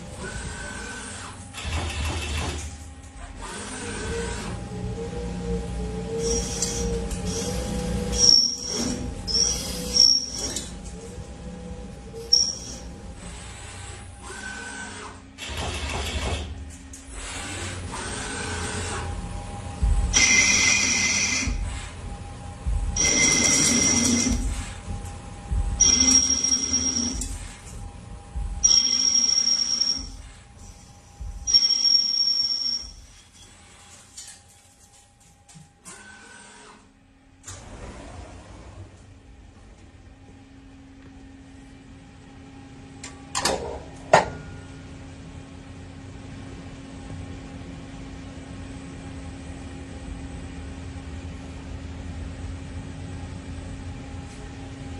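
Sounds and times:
machine running: 0:00.0 - 0:34.4
lathe threading whine: 0:20.1 - 0:21.7, 0:25.8 - 0:27.7.

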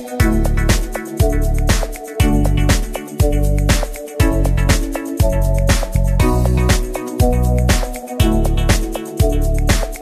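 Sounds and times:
instrumental music with bass and drums: 0:00.0 - 0:10.0.

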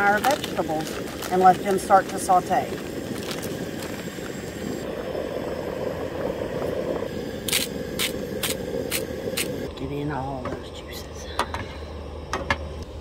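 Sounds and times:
vegetables sizzling in skillet: 0:00.0 - 0:09.7.

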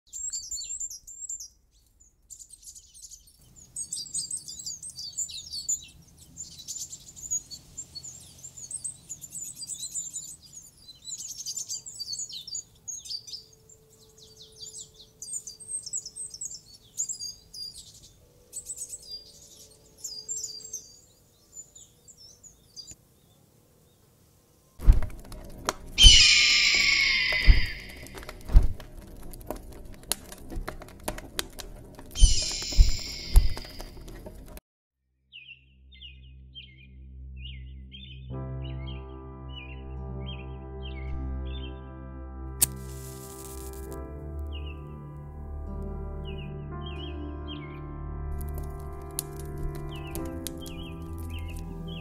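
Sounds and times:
small birds chirping: 0:00.1 - 0:24.1, 0:24.8 - 0:34.6, 0:48.5 - 0:52.0
heavy thuds: 0:24.8 - 0:34.6
bird of prey screeching: 0:26.0 - 0:28.6, 0:32.2 - 0:34.0.

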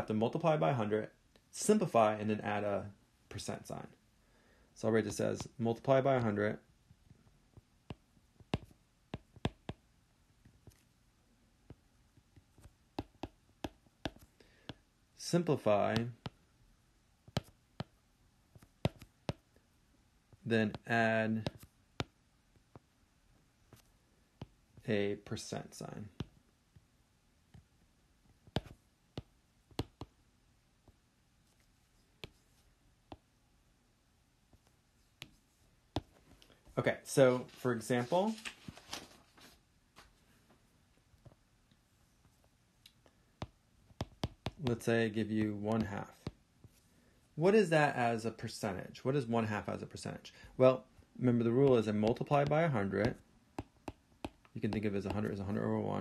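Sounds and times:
pen tip tapping: 0:07.9 - 0:09.8, 0:12.6 - 0:14.8, 0:18.6 - 0:19.4, 0:28.4 - 0:30.1.

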